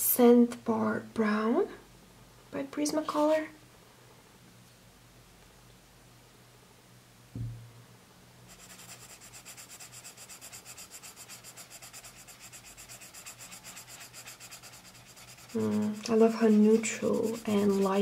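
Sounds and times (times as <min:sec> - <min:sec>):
low thump: 0:07.3 - 0:07.7
pencil scratching on paper: 0:08.5 - 0:18.0.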